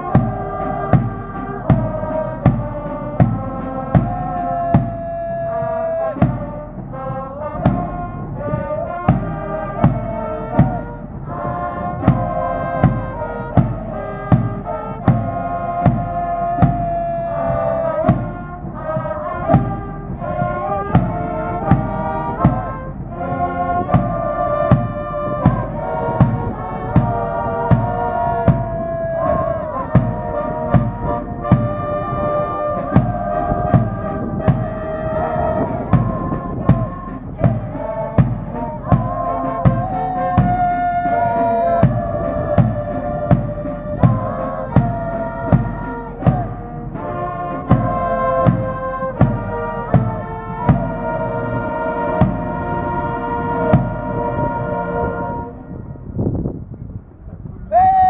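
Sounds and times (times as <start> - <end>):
drum beating: 0.0 - 55.4
trumpets playing melody: 0.0 - 56.5.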